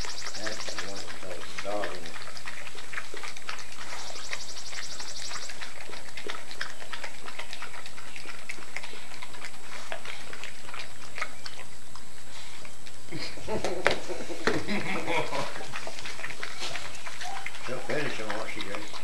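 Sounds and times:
dog chewing plastic bottle: 0.0s - 12.1s, 15.6s - 19.0s.

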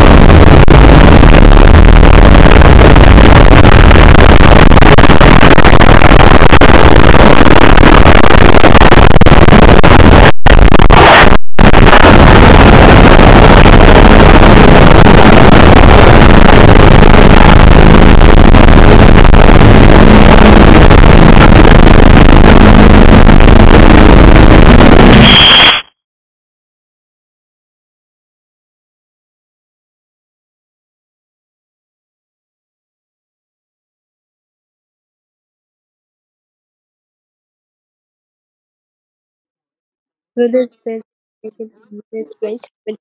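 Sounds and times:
blaring distorted noise: 0.0s - 26.0s, 40.4s - 43.0s.

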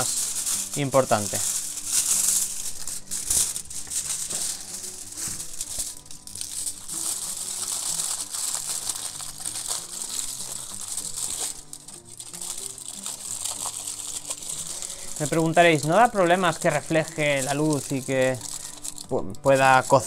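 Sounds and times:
aluminium foil crinkling: 0.0s - 20.0s
quiet background music: 0.0s - 20.0s.

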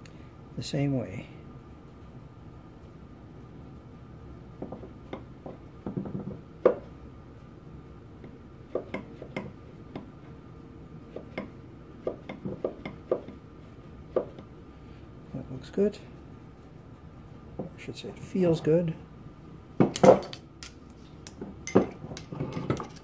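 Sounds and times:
metallic clicks and knocks: 19.9s - 23.0s.

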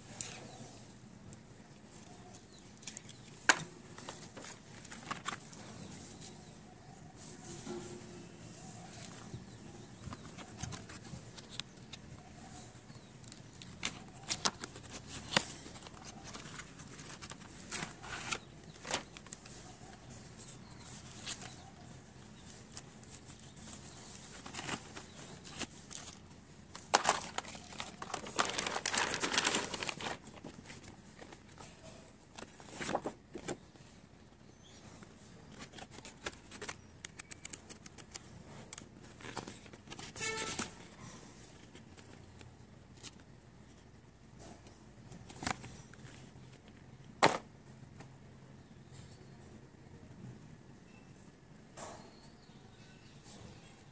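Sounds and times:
paper pages flapping: 2.3s - 5.6s, 13.3s - 19.7s, 22.5s - 31.7s, 32.3s - 33.6s, 35.5s - 40.8s
plastic rustling: 13.2s - 19.7s, 22.4s - 33.6s.

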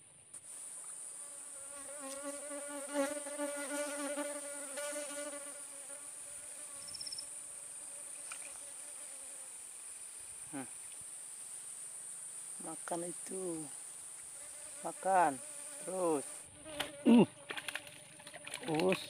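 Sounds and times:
flying insect buzzing: 0.4s - 18.9s
high shrill of insects: 6.8s - 7.4s.

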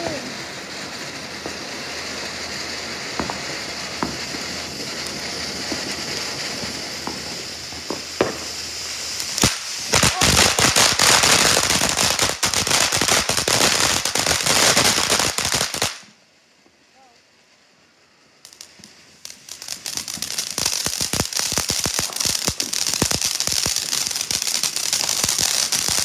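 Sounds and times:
dense firework crackling: 0.0s - 26.0s
firework fountain hissing: 0.0s - 26.0s
firework pops: 1.4s - 1.6s, 3.1s - 8.7s, 9.3s - 13.3s, 18.5s - 26.0s.

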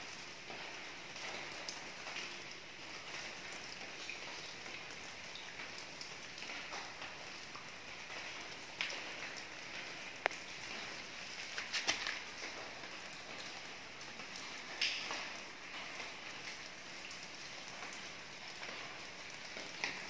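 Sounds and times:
close raindrops hitting: 0.0s - 20.0s
steady rain: 0.0s - 20.0s.

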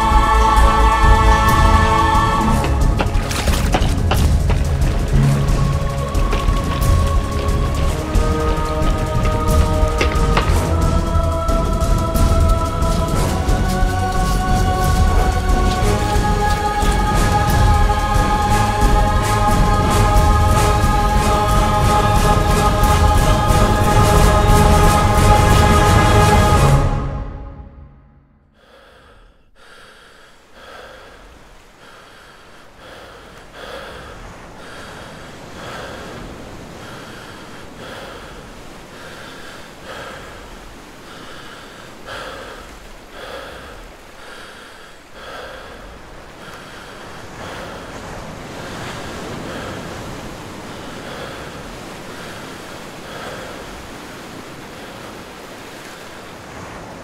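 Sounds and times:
heavy rhythmic breathing: 0.0s - 26.9s, 28.4s - 56.6s
steady wash of noise: 0.0s - 57.0s.

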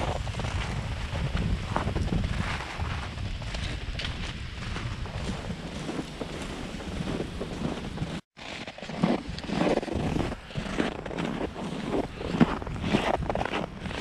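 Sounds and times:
wind buffeting microphone: 0.0s - 8.2s.

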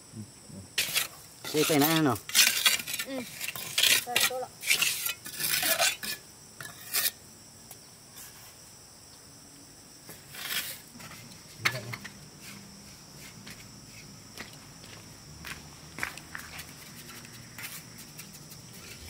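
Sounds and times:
hard object rasping scrapes: 0.8s - 7.2s, 10.1s - 11.2s.

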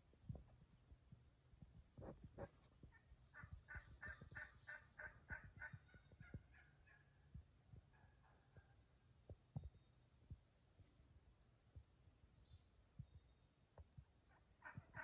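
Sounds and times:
wild turkey calling: 2.9s - 7.3s, 14.2s - 15.0s
soft low thumps: 9.3s - 11.0s.

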